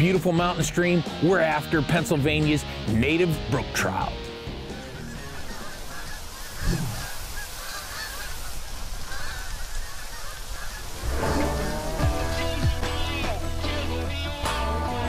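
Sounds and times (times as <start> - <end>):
geese honking: 4.7 - 13.7.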